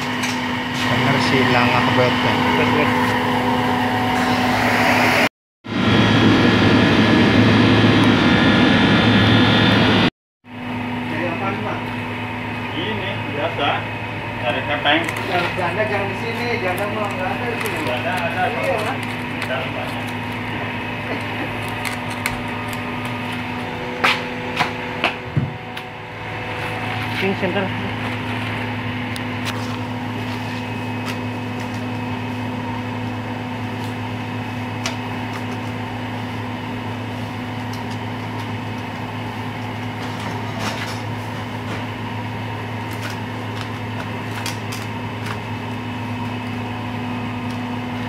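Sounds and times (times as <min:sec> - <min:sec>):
water pump humming: 0:00.0 - 0:48.0.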